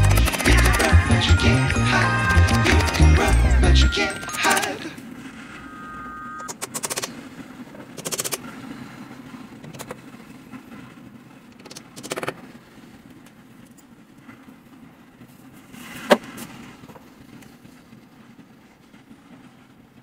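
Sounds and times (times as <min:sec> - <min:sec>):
screwdriver rapid clicking: 0:00.0 - 0:00.9, 0:06.5 - 0:07.1, 0:08.0 - 0:08.4.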